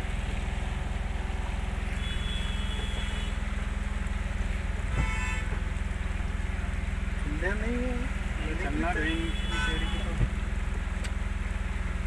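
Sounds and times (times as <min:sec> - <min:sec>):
engine rumble inside cabin: 0:00.0 - 0:12.0.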